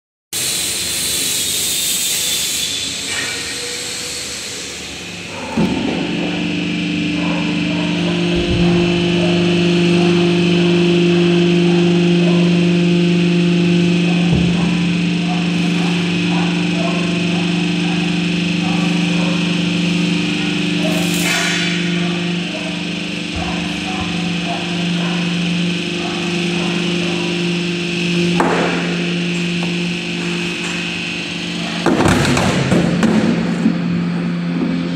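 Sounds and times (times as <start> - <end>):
hydraulic press humming: 0.4 - 34.9
pump motor starting knock: 8.2 - 9.6, 14.0 - 16.0.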